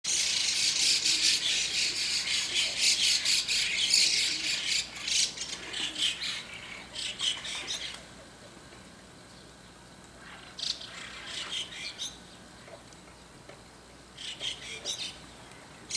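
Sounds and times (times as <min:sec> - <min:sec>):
flock of starlings calling: 0:00.1 - 0:08.0, 0:10.2 - 0:12.2, 0:14.2 - 0:15.9.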